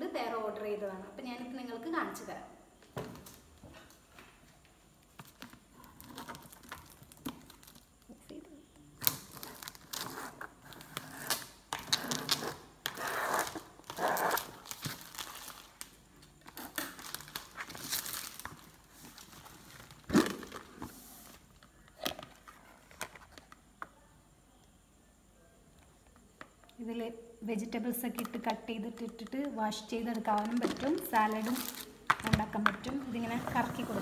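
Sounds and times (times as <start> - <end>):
plastic film crinkling and tearing: 5.2 - 7.9, 9.0 - 20.8, 30.3 - 32.2.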